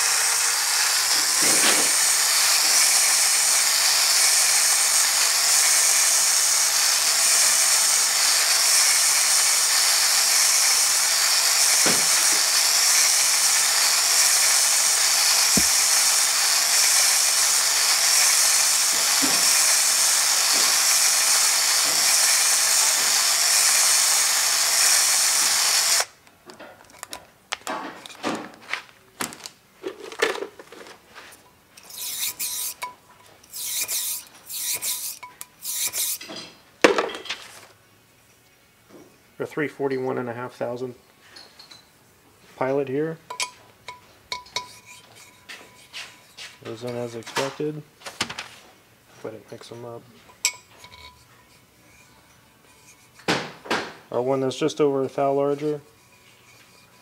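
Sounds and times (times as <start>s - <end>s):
drill spinning hone in metal: 0.0s - 26.1s, 31.8s - 36.3s.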